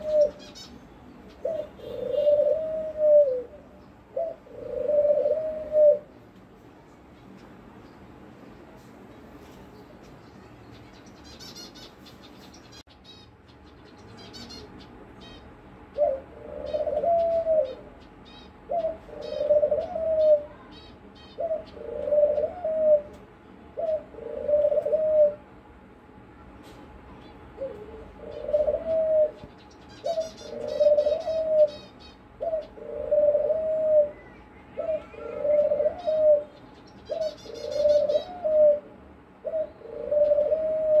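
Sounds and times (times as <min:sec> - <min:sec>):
dove cooing: 0:00.0 - 0:06.2, 0:15.2 - 0:25.5, 0:27.6 - 0:41.0
small birds chirping faintly: 0:00.0 - 0:41.0.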